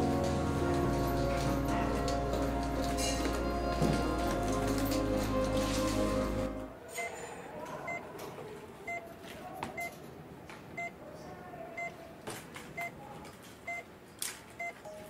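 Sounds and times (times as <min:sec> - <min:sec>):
patient monitor beeping: 0:08.9 - 0:09.2, 0:09.8 - 0:10.0, 0:10.8 - 0:11.0, 0:11.8 - 0:12.0, 0:12.8 - 0:13.0, 0:13.7 - 0:13.9, 0:14.6 - 0:15.0.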